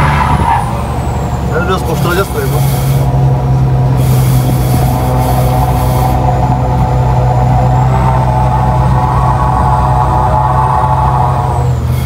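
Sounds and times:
diesel truck engine running: 0.0 - 12.0
hiss: 4.0 - 6.2.

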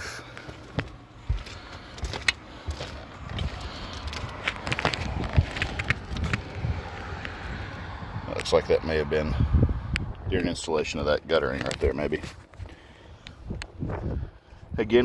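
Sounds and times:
footsteps on roof shingles: 0.4 - 7.2
low rumble: 0.7 - 10.5.

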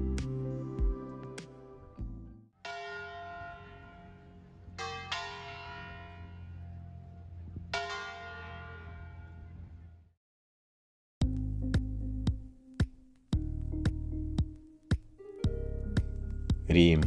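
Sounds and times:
church bells ringing: 2.6 - 9.6.

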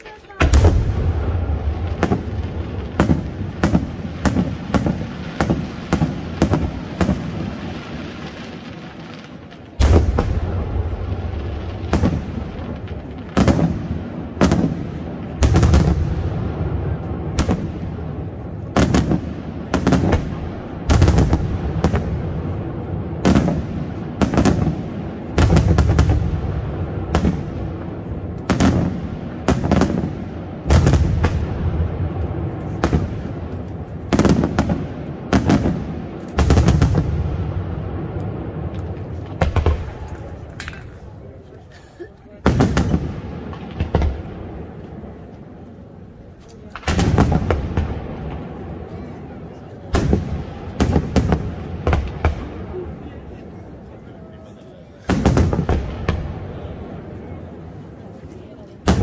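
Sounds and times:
firework shells bursting: 37.9 - 41.3.

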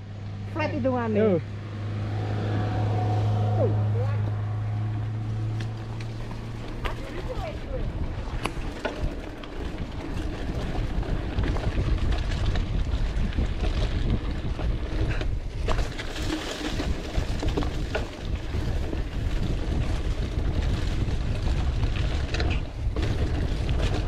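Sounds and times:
bike tyres on dirt: 0.5 - 24.0
wind rush on microphone: 4.8 - 24.0
bike clicks and rattles: 5.0 - 24.0.

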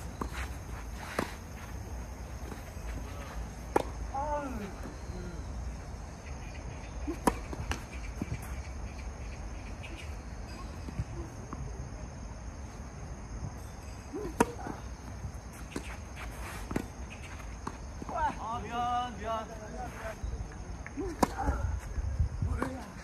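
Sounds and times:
racket hitting tennis ball: 7.1 - 8.5.

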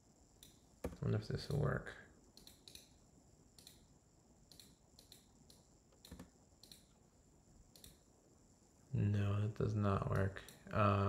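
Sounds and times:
keyboard and mouse clicks: 2.3 - 2.9, 3.6 - 3.8, 4.5 - 6.9, 7.7 - 8.0.

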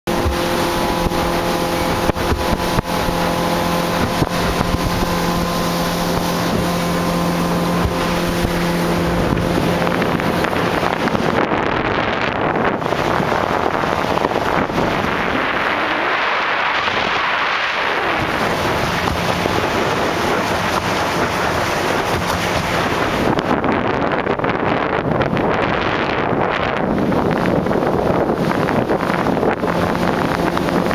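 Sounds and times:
motorboat engine humming: 0.0 - 30.9
water rushing past: 0.1 - 30.9
wind buffeting microphone: 0.1 - 30.9.

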